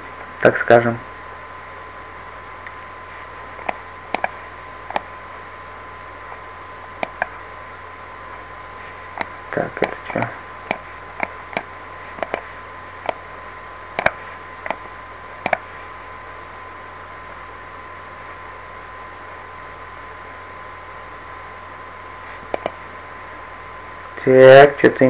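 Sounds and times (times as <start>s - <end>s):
microphone hiss: 0.0s - 25.0s
thin constant whine: 0.0s - 25.0s
computer mouse clicking: 3.6s - 5.1s, 7.0s - 7.4s, 9.2s - 12.4s, 14.0s - 14.8s, 15.4s - 15.7s, 22.4s - 22.8s.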